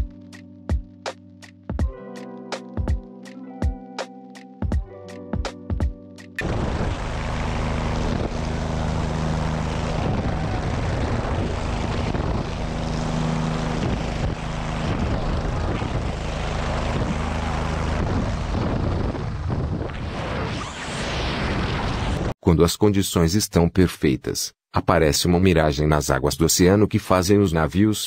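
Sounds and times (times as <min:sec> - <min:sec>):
helicopter rotor and engine drone: 0:06.4 - 0:20.1
wind rushing on microphone: 0:07.9 - 0:22.3.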